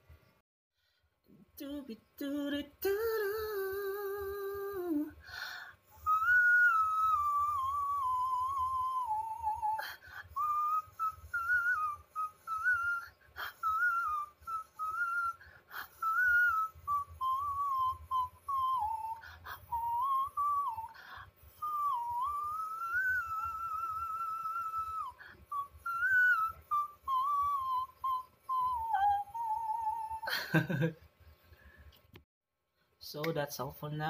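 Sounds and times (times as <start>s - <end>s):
man singing very high wordless melody: 1.6s - 5.2s.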